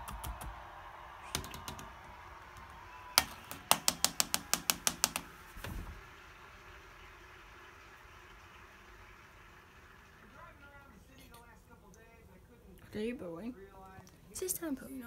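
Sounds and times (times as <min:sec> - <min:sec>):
sharp hard taps: 0:03.2 - 0:05.3.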